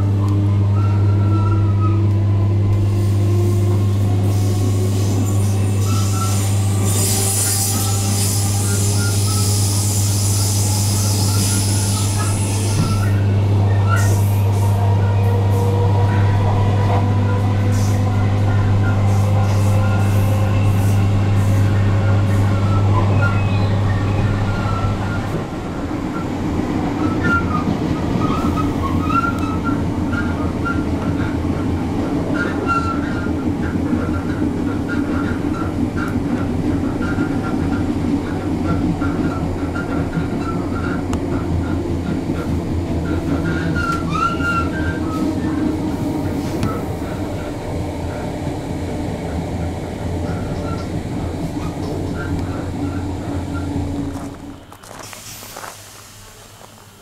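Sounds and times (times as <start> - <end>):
train electrical hum: 0.0 - 57.0
wheel-on-rail rumble: 0.0 - 57.0
wheel squeals: 5.0 - 14.3, 21.6 - 25.4, 27.0 - 31.4, 32.3 - 47.5, 50.2 - 55.7
hiss: 55.0 - 57.0.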